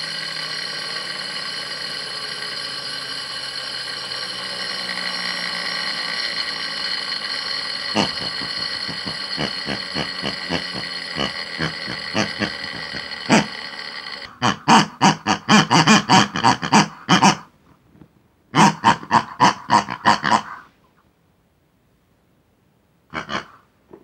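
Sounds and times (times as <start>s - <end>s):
regular ticking: 0.0s - 14.4s
electric motor whining: 0.0s - 16.3s
loud rapid pulses: 0.0s - 17.5s.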